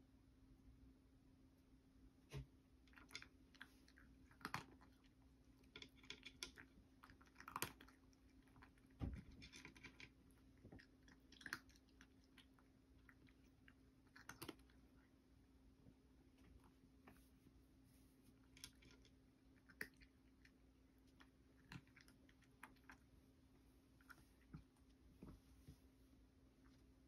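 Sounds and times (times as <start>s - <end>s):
cat crunching dry kibble: 2.9s - 15.2s, 18.3s - 23.2s.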